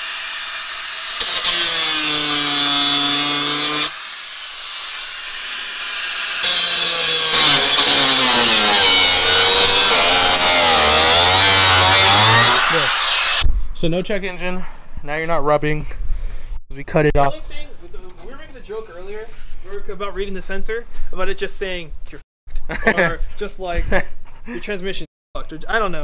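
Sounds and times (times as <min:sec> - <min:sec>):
power tool cutting plastic: 0:00.0 - 0:13.4.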